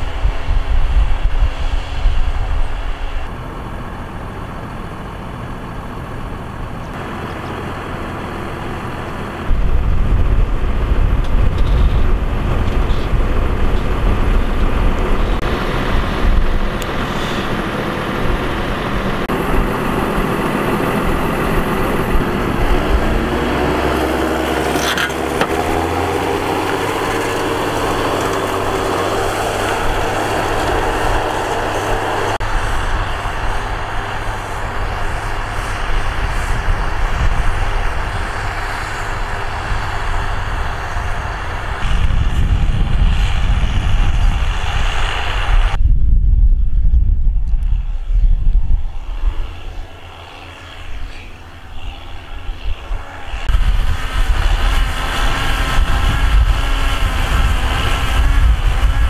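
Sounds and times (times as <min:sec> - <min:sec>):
tractor diesel engine running: 0:00.0 - 0:45.8, 0:48.6 - 0:59.0.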